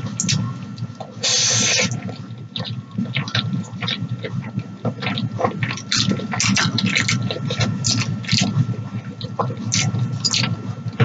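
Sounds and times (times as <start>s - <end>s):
wet chewing and mouth smacks: 0.1s - 10.6s
person slurping noodles: 1.2s - 2.0s.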